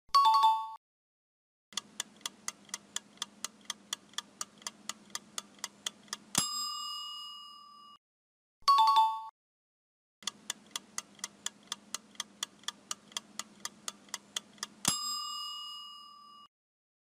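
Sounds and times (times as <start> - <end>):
clock ticking quickly: 1.8 - 6.5, 10.2 - 15.2
bell ding: 6.4 - 8.0, 8.7 - 9.3, 14.9 - 16.5.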